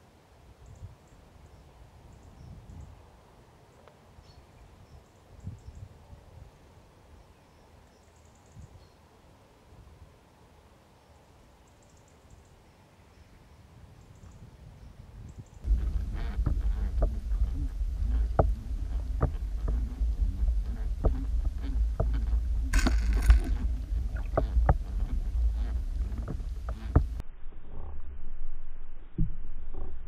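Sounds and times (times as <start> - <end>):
muffled underwater rumble: 15.6 - 30.0.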